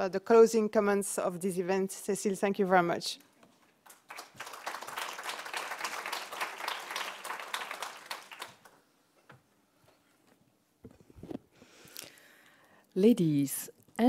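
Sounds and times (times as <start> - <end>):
audience applause: 3.9 - 8.8.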